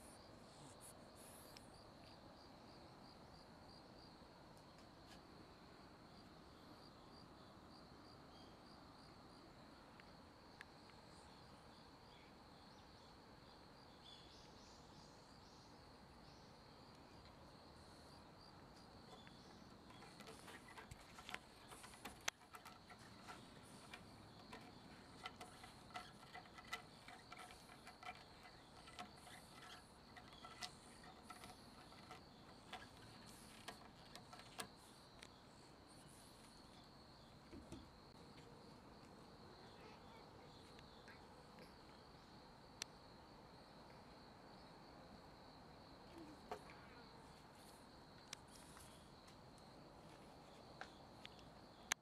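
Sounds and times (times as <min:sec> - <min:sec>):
light clicks and taps: 0:19.1 - 0:35.3.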